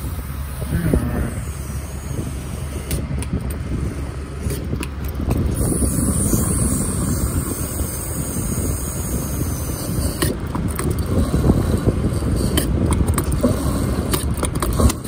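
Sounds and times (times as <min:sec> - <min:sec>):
fuel nozzle rushing: 0:00.0 - 0:15.0.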